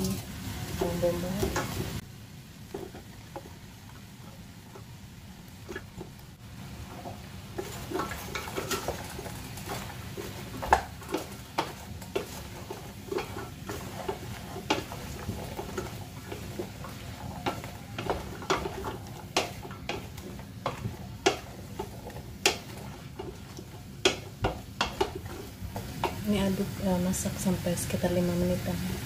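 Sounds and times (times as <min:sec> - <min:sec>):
wooden spoon scraping a pot: 0:06.8 - 0:26.8.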